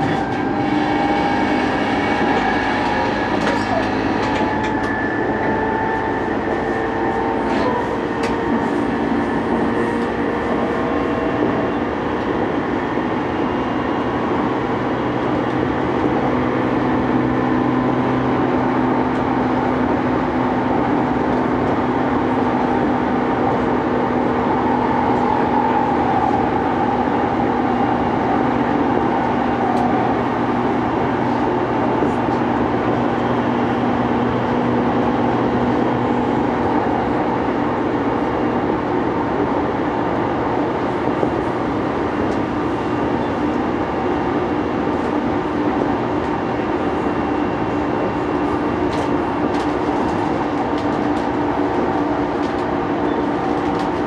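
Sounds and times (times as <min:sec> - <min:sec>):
train rolling noise: 0:00.0 - 0:54.0.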